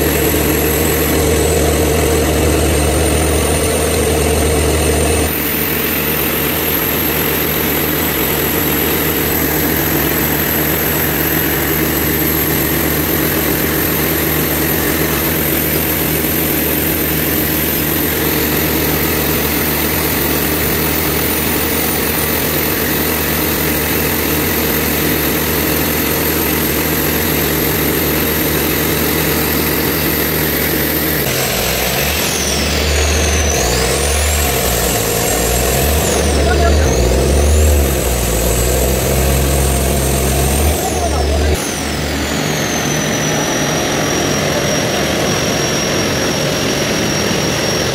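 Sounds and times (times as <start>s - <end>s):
diesel engine running: 0.0s - 47.9s
high tone sliding: 0.0s - 47.9s.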